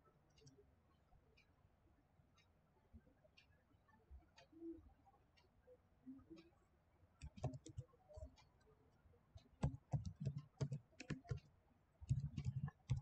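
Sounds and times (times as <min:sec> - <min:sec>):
typing on a computer keyboard: 0:07.2 - 0:08.4, 0:09.4 - 0:13.0.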